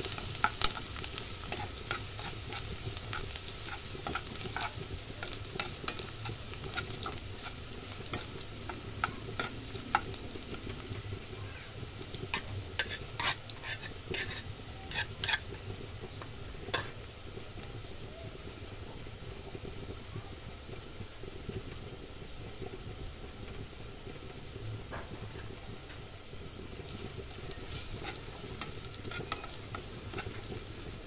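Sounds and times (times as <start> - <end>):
metal spoon scraping a pan: 0.0 - 10.9, 12.1 - 15.7, 16.7 - 17.0, 26.9 - 31.0
garlic and onion sizzling in oil: 0.0 - 31.0.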